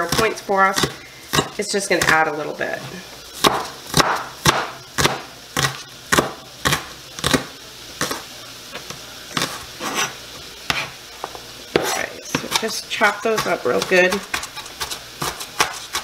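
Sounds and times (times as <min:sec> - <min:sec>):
knife chopping on cutting board: 0:03.4 - 0:08.2, 0:10.7 - 0:12.7, 0:13.3 - 0:16.0.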